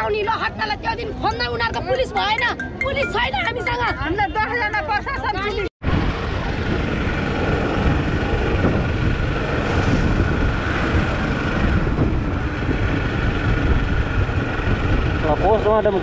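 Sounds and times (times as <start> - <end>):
road noise: 0.0 - 16.0
motorcycle engine: 5.8 - 16.0
wind buffeting on microphone: 5.8 - 16.0.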